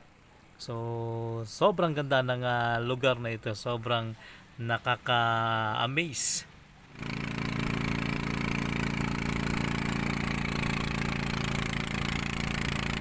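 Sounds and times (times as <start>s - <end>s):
boat engine droning: 6.3s - 13.0s.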